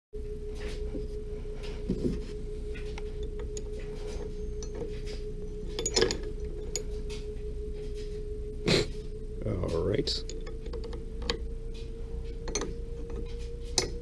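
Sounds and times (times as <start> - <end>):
steady hum: 0.2 - 14.0
metal spanners clinking: 3.3 - 7.2, 10.2 - 11.4, 12.4 - 14.0.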